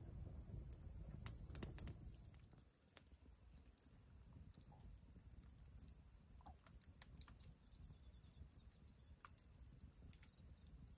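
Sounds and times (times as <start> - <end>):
campfire crackling: 0.0 - 10.9.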